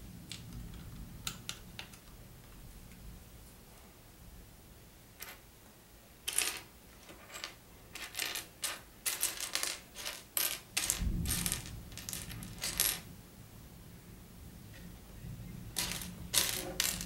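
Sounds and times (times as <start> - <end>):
plastic toy bricks clattering: 15.8 - 17.0.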